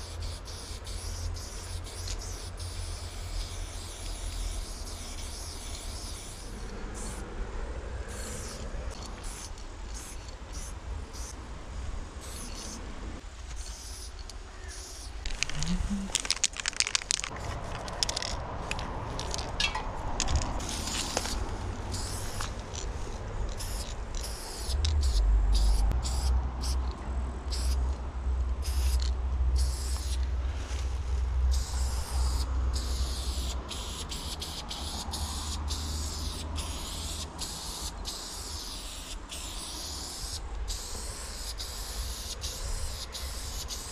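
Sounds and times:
spray paint cans hissing: 0:00.0 - 0:07.2, 0:08.1 - 0:12.8, 0:13.4 - 0:26.9, 0:27.5 - 0:27.9, 0:28.6 - 0:30.3, 0:31.5 - 0:43.9.

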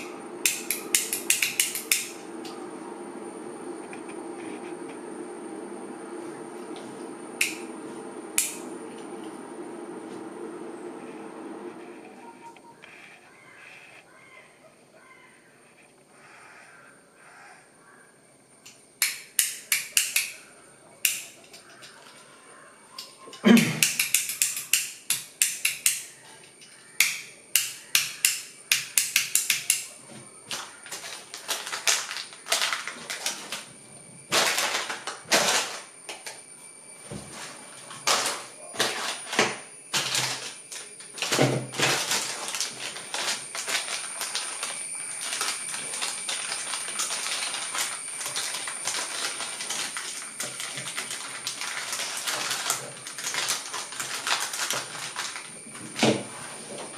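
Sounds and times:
plastic packaging crinkling: 0:30.5 - 0:33.7, 0:34.3 - 0:35.9, 0:37.4 - 0:56.9.

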